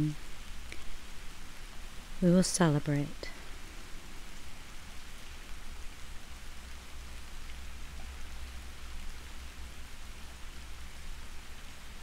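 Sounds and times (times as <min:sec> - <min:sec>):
soft rain falling: 0:00.0 - 0:12.0.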